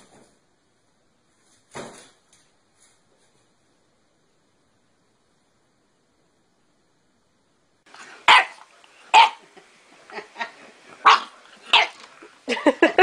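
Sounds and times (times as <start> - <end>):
puppy barking: 8.0 - 12.1.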